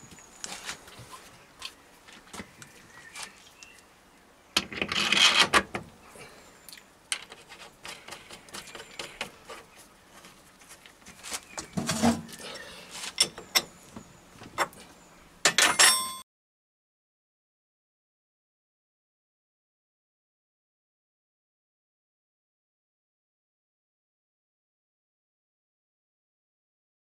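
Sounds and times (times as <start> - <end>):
metal parts clinking: 15.5 - 16.2.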